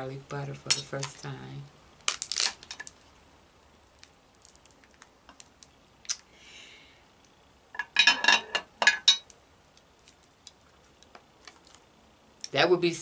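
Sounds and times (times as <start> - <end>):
crab shell cracking: 2.0 - 3.0, 3.9 - 6.3.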